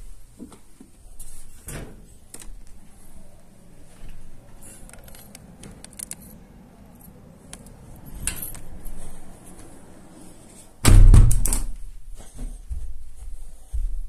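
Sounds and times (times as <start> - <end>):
loud thump: 10.8 - 11.8.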